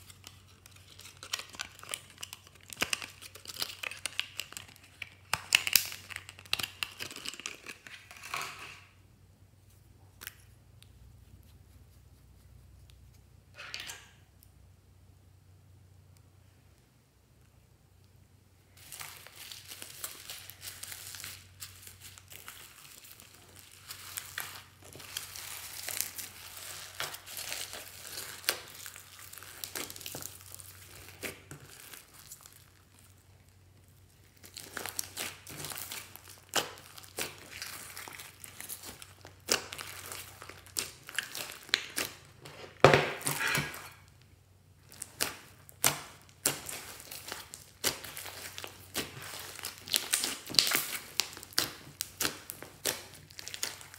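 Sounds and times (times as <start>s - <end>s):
foam bead slime crackling: 0.0s - 8.4s, 18.7s - 42.5s, 44.8s - 53.9s.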